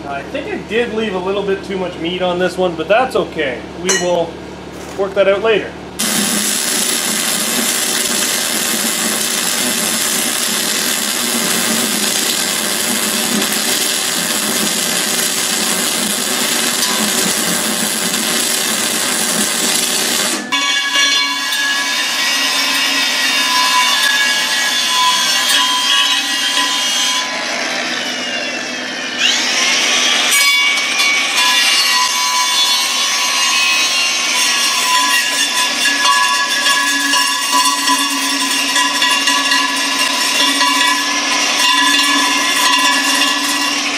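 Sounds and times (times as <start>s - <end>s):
welding crackling hiss: 6.0s - 20.5s, 31.2s - 43.9s.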